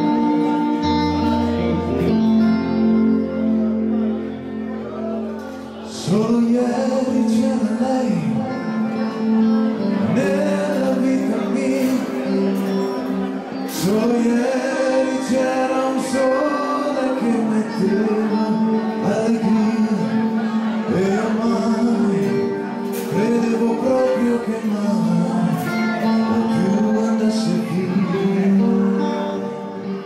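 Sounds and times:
rock band playing: 0:00.0 - 0:30.0
man singing: 0:04.8 - 0:30.0.

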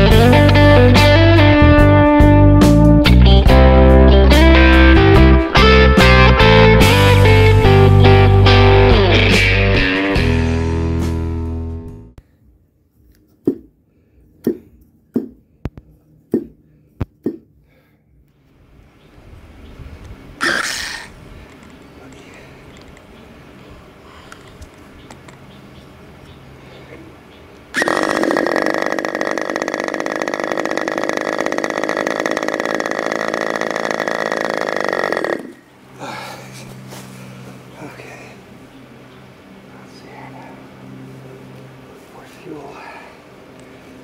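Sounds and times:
model airplane engine running: 0:27.8 - 0:35.6.

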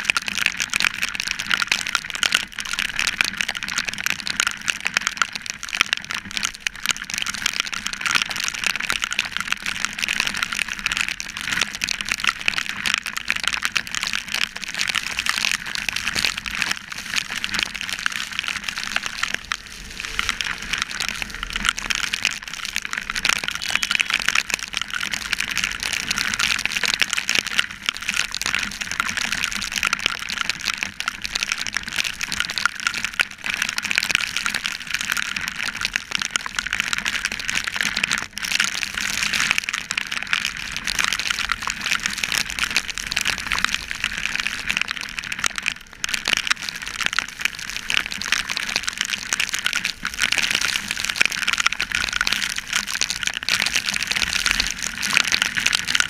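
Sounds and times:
heavy rain hiss: 0:16.8 - 0:24.6
wind rushing: 0:18.0 - 0:24.2.

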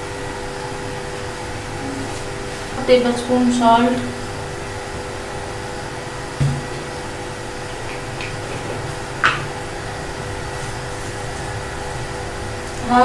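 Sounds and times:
dull knock: 0:06.4 - 0:06.9.

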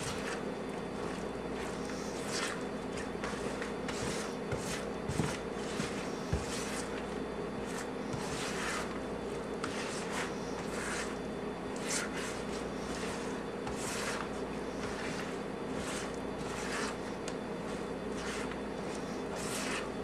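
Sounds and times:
spoon stirring thick mixture: 0:00.0 - 0:20.0
steady low hum: 0:00.0 - 0:20.0.

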